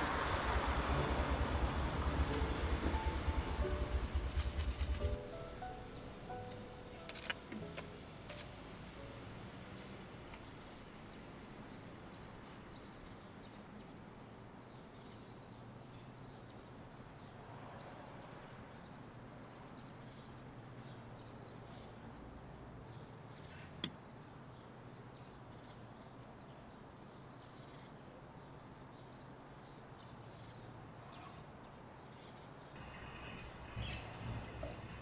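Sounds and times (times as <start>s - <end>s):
sharp click: 7.1s - 8.5s.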